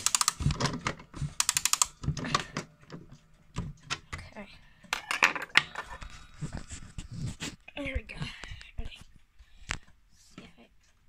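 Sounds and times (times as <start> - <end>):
rapid clicking of mantel clock: 0.0 - 2.0.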